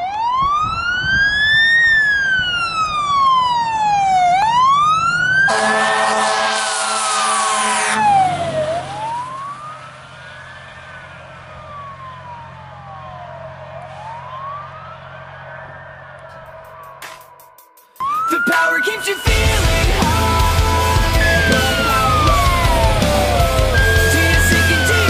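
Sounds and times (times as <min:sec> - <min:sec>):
fire engine siren wailing: 0:00.0 - 0:17.4, 0:18.0 - 0:25.0
fire engine horn blast: 0:05.4 - 0:08.9
low engine drone: 0:19.2 - 0:25.0.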